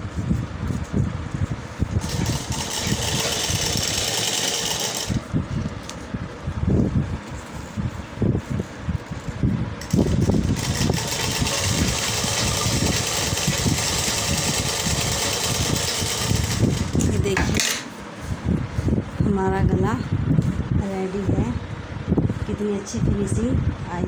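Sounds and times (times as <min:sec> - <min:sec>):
sewing machine stitching: 0:02.0 - 0:05.2, 0:09.8 - 0:17.1.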